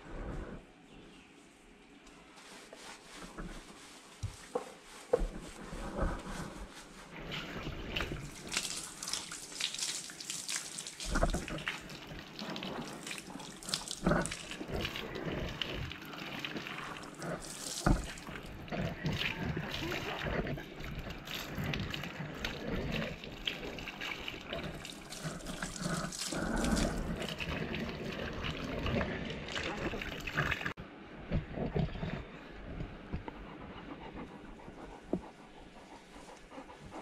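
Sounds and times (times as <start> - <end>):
hands scrubbing wet dog coat: 2.1 - 30.8
water splashing on tiled floor: 7.2 - 30.8.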